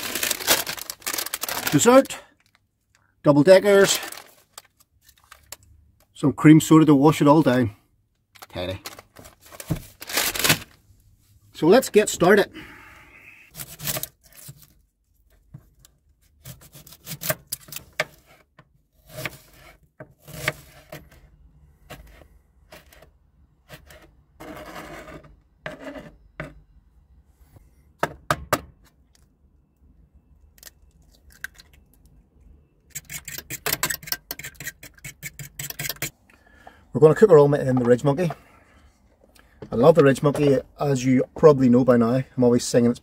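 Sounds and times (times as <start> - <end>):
fork beating eggs in metal pan: 32.9 - 36.1.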